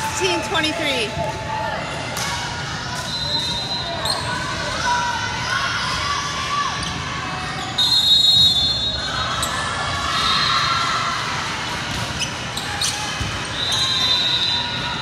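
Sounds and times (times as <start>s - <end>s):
ball and court sounds: 0.0s - 15.0s
crowd noise in a gym: 0.0s - 15.0s
referee's whistle: 3.0s - 4.3s, 7.6s - 9.5s, 12.6s - 15.0s.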